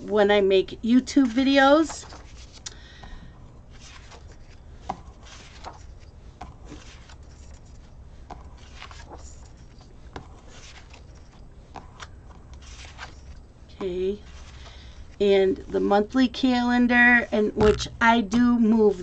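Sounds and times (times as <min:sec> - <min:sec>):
paper pages rustling: 0:01.2 - 0:02.7, 0:03.7 - 0:13.5, 0:14.1 - 0:15.2.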